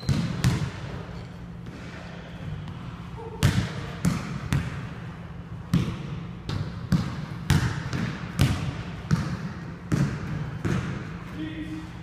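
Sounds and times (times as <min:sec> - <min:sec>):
basketball bouncing on wooden floor: 0:00.0 - 0:00.8, 0:05.7 - 0:11.0.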